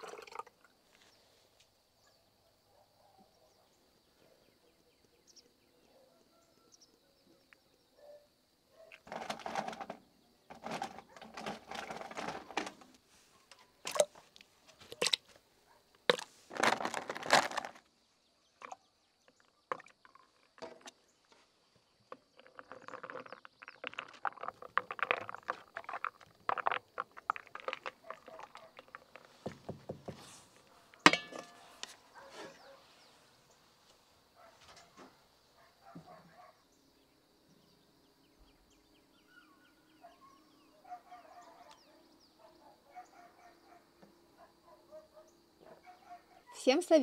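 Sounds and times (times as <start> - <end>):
ice clinking in plastic container: 9.1 - 12.8, 16.1 - 17.8, 22.5 - 28.9.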